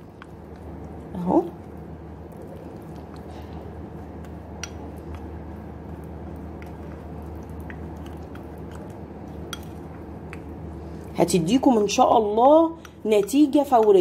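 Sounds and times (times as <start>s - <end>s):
spoon squelching in paste: 0.0s - 11.2s
steady low hum: 0.0s - 14.0s.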